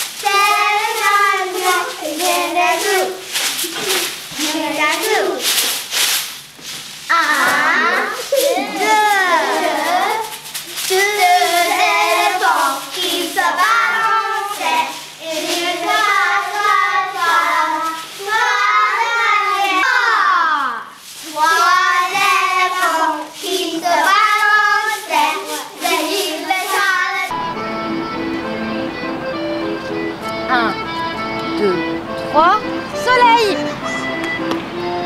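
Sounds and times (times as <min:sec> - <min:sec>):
children singing: 0:00.0 - 0:05.6, 0:07.1 - 0:27.8
steady music: 0:25.8 - 0:35.0.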